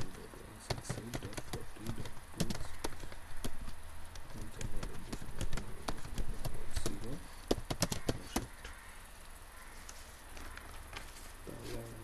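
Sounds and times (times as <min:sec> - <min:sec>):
computer keyboard typing: 0:00.0 - 0:08.6.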